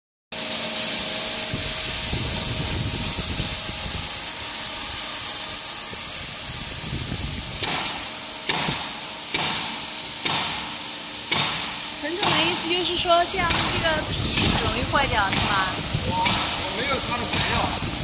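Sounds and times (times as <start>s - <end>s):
electrical discharge hiss: 0.4s - 18.0s
high-pitched whine: 0.4s - 18.0s
low machine rumble: 0.6s - 8.6s, 11.8s - 18.0s
short bursts of noise: 11.8s - 18.0s.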